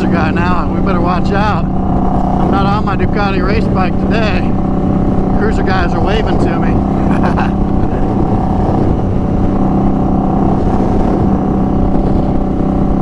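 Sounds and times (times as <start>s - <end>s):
motorcycle engine cruising: 0.0s - 13.0s.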